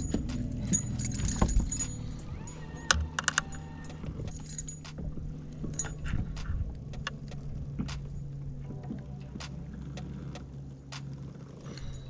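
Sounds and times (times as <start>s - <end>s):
fishing lure hooks rattling: 0.0s - 6.2s
steady low hum: 0.0s - 12.0s.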